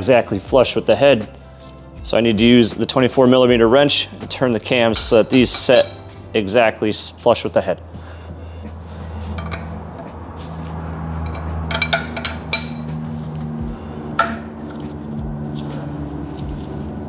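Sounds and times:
wrench clinking on metal: 4.9 - 6.1, 9.4 - 9.8, 11.2 - 12.9.

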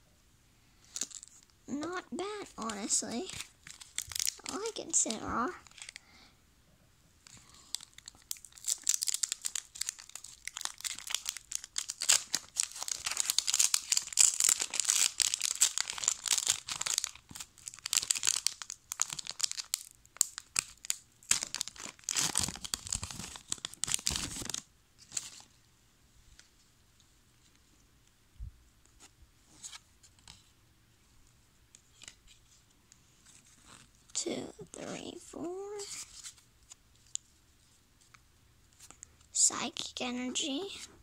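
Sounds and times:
foil wrapper crinkling and tearing: 0.9 - 1.5, 2.2 - 6.0, 7.2 - 25.5.

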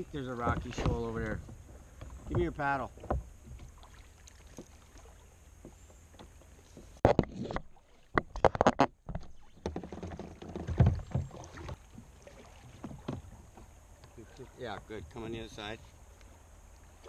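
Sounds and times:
paddle knocking on plastic kayak: 0.3 - 3.8, 8.2 - 13.7.

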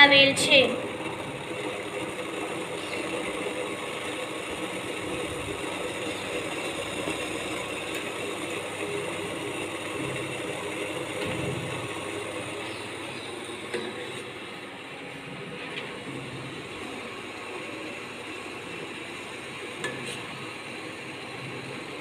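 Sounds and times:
induction cooktop hum: 0.0 - 22.0
pot of water simmering: 0.0 - 22.0.

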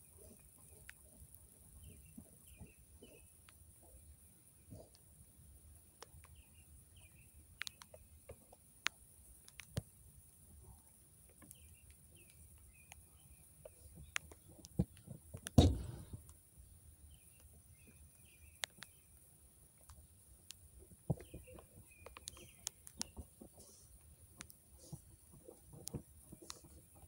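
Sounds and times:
small birds chirping: 0.0 - 27.0
sharp clicks and knocks: 14.2 - 16.3.

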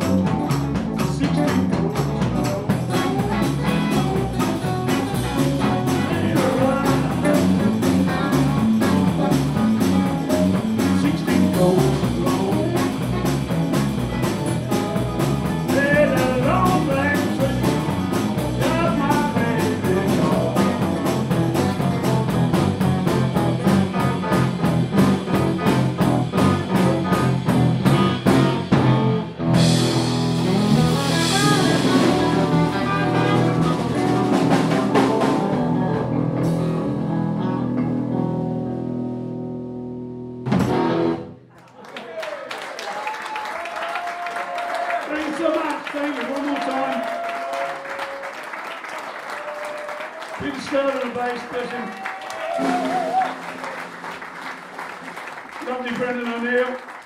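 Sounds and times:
drum kit: 0.0 - 38.3, 40.3 - 41.3, 52.1 - 54.6
electric guitar: 0.0 - 41.4
bass guitar: 0.0 - 41.5, 52.2 - 55.3.

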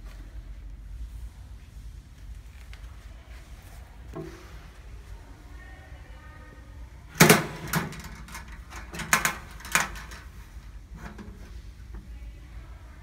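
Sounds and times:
metal latches clicking open: 7.2 - 10.3.

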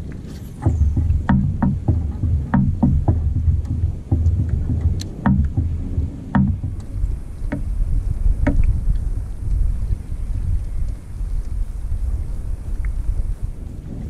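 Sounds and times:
water lapping against boat hull: 0.0 - 11.8
wind on microphone: 0.0 - 14.0
sharp knocks on hull: 0.6 - 6.9, 8.4 - 8.7.

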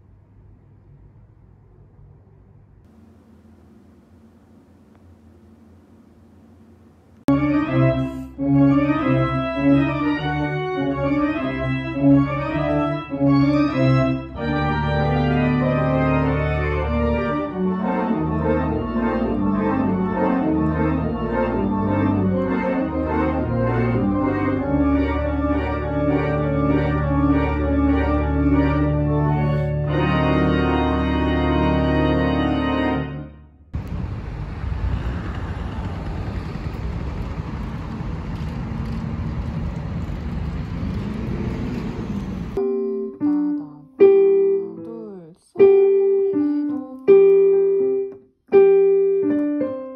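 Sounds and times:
electronic keyboard music: 7.3 - 33.5, 42.6 - 49.9
rushing street noise: 33.8 - 42.6.

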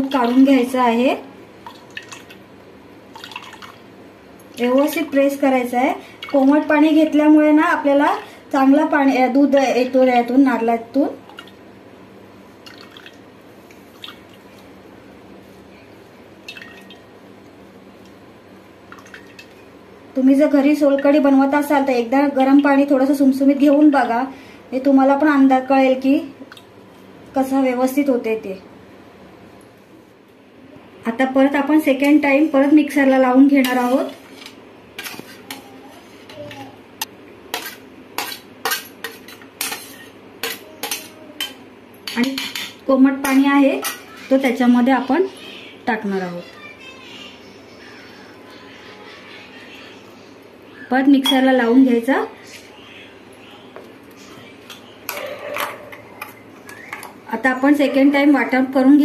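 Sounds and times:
spoon scraping and tapping metal plate: 37.5 - 44.0.

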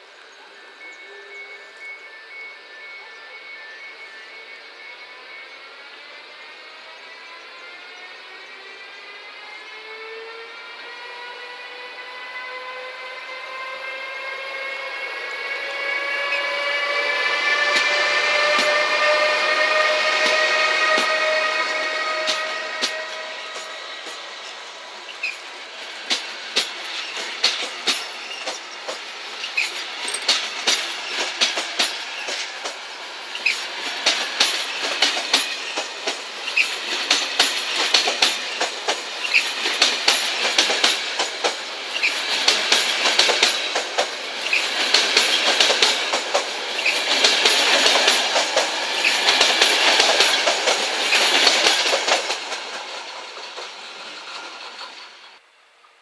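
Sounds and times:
wheel squeals: 7.0 - 55.4
train wheels clicking over rails: 11.7 - 55.5.

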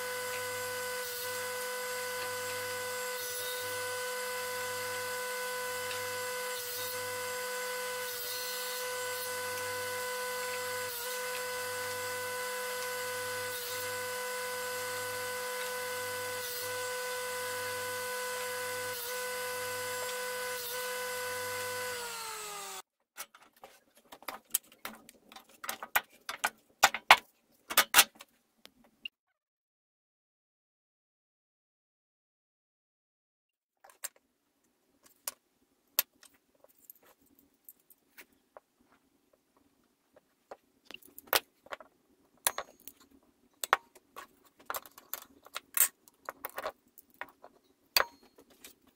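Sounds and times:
table saw whining: 0.0 - 22.8.

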